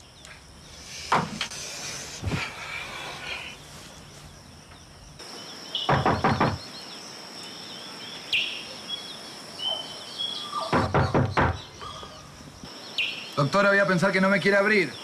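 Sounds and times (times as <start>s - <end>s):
birds chirping: 0.0s - 15.0s
knocking on wooden door: 5.9s - 6.6s, 10.7s - 11.7s.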